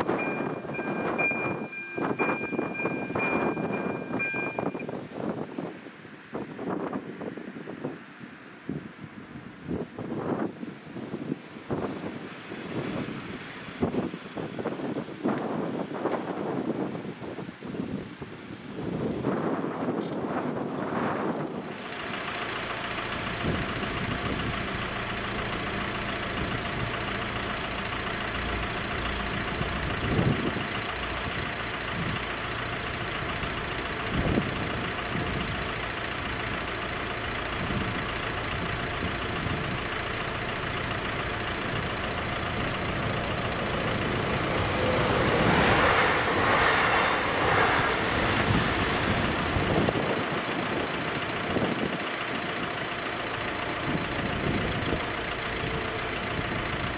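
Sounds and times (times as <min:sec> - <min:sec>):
cars idling: 0:00.0 - 0:04.8, 0:21.6 - 0:56.9
electronic warning bell ringing: 0:00.0 - 0:04.9, 0:23.6 - 0:46.6, 0:47.6 - 0:56.9
train rushing over crossing: 0:00.0 - 0:05.4, 0:23.0 - 0:56.9.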